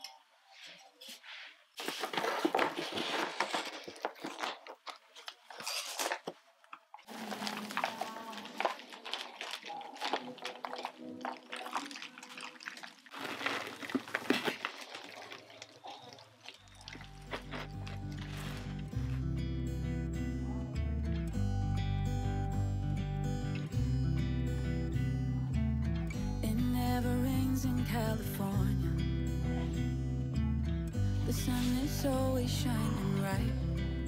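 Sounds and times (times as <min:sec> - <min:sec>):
soil rustling and crunching: 0:01.8 - 0:19.4
faint background music: 0:15.1 - 0:34.0.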